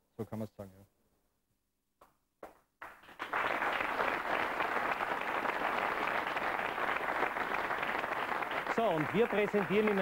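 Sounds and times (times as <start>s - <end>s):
audience applauding: 2.8s - 10.0s.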